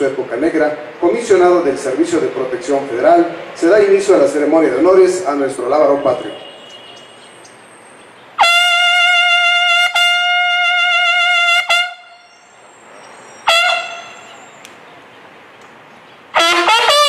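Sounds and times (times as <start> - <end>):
bugle call: 5.8 - 7.6, 8.4 - 12.4, 13.4 - 14.6, 16.3 - 17.0.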